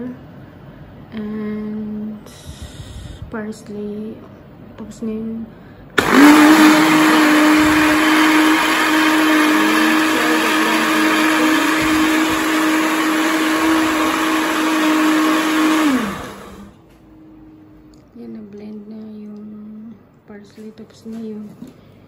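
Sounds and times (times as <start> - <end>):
electric blender running: 6.0 - 16.8.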